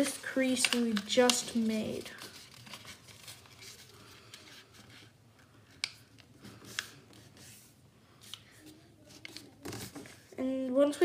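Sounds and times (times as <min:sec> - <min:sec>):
paper rustling: 0:00.0 - 0:05.1, 0:05.7 - 0:10.4
crisp paper snaps: 0:00.6 - 0:01.7.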